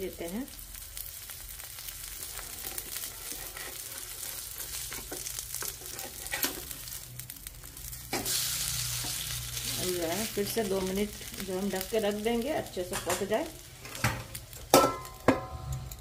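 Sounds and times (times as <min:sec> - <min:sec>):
oil sizzling in a pan: 0:00.0 - 0:15.8
spatula scraping and tapping pan: 0:02.4 - 0:06.7.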